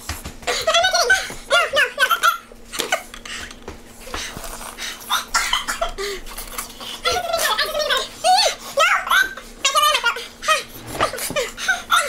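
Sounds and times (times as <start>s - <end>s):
women laughing: 0.5s - 3.1s
women coughing: 5.1s - 6.2s.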